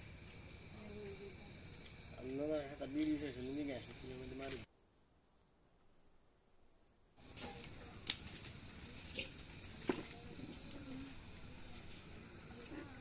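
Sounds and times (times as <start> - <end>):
crickets chirping: 0.0 - 13.0.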